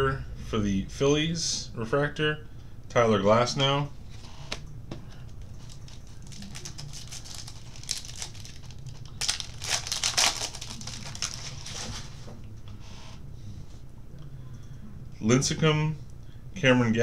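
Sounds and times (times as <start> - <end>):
cards rustling: 5.2 - 12.2
foil wrapper crinkling and tearing: 5.6 - 12.2.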